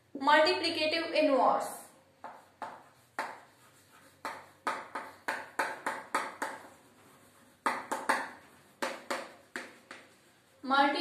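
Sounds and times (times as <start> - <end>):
chalk tapping on blackboard: 2.2 - 10.5.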